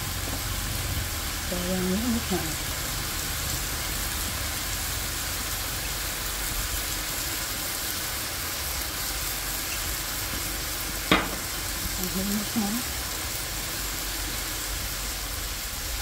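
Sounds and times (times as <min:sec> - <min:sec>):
food sizzling in a wok: 0:00.0 - 0:16.0
sharp knock: 0:11.1 - 0:11.5.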